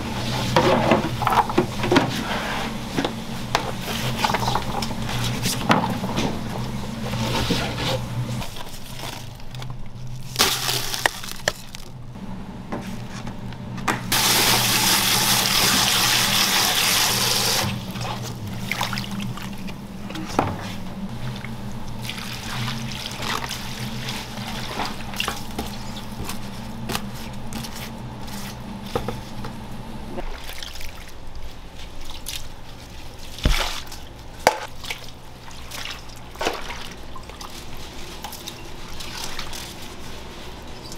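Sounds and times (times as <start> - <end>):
steady low hum: 0.0 - 40.9
water running hard: 14.1 - 20.5.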